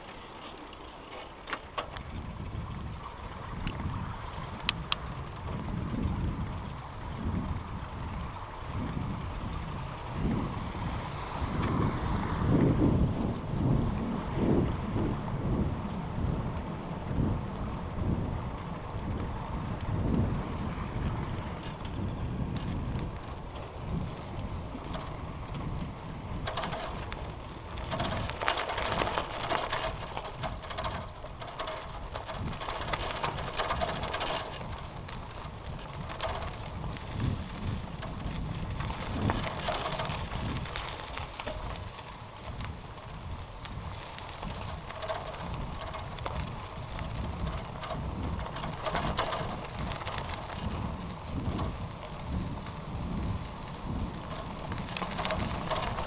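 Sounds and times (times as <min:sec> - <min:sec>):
wind rumbling on microphone: 0:01.6 - 0:56.0
bicycle parts rattling and ticking: 0:12.5 - 0:14.7, 0:15.4 - 0:56.0.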